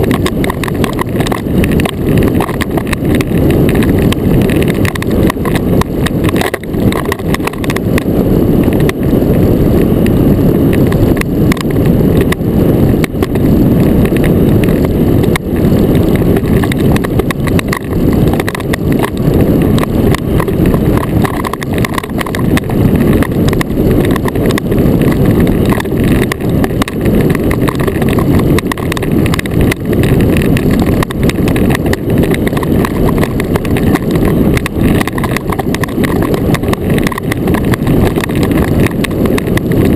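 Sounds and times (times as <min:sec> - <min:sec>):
runners sliding over ice: 0:00.0 - 0:39.9.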